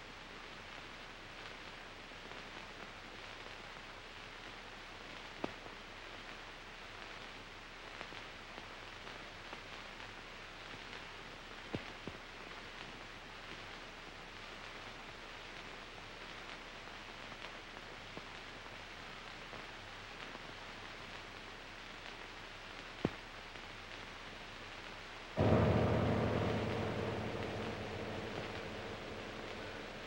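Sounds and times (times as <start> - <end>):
film soundtrack hiss: 0.0 - 30.0.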